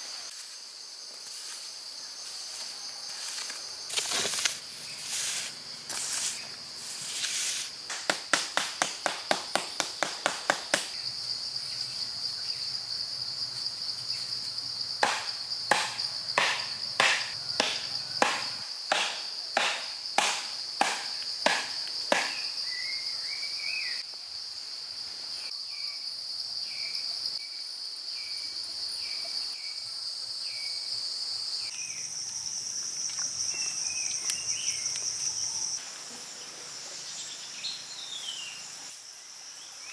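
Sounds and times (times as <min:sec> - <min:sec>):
sharp knocks: 0:15.0 - 0:22.4.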